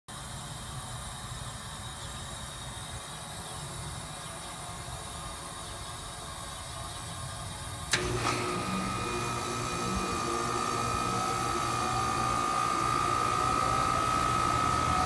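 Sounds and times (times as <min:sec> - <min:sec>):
heat pump low hum: 0:00.2 - 0:15.0
sharp click: 0:07.9 - 0:09.1.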